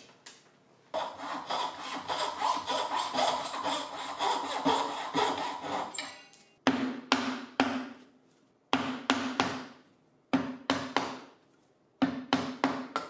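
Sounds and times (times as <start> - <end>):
mallet striking chisel into wood: 6.6 - 8.0, 8.7 - 11.3, 12.0 - 13.0.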